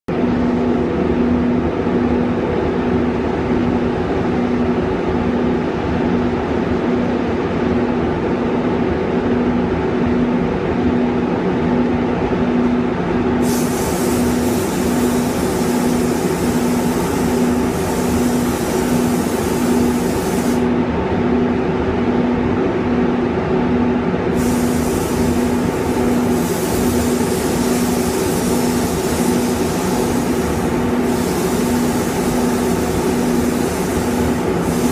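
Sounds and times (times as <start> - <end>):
ventilation fans humming: 0.1 - 34.9
high air hiss: 13.4 - 20.8, 24.3 - 34.9.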